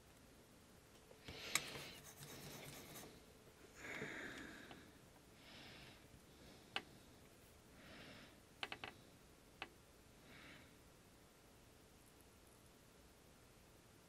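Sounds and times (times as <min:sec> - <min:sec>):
soft breaths: 0:01.1 - 0:09.4, 0:10.1 - 0:11.0.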